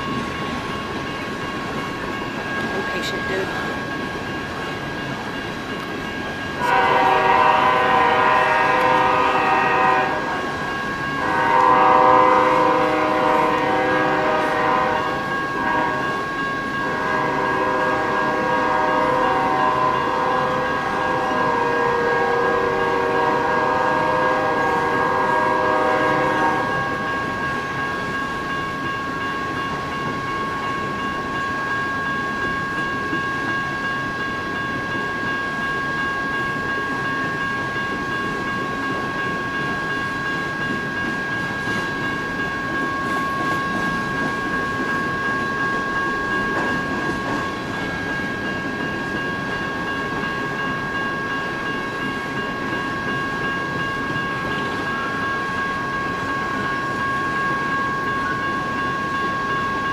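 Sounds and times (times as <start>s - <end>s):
high ringing tone: 0.0s - 59.9s
train cars rumbling past: 0.0s - 59.9s
locomotive air horn chord: 6.6s - 10.5s, 11.2s - 16.2s, 16.8s - 27.3s.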